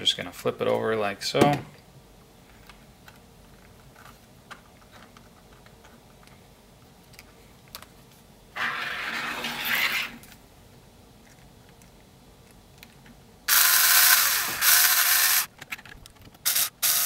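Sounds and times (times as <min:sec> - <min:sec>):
electric screwdriver running: 0:13.5 - 0:15.5, 0:16.5 - 0:17.0
plastic parts clicking: 0:14.7 - 0:16.7.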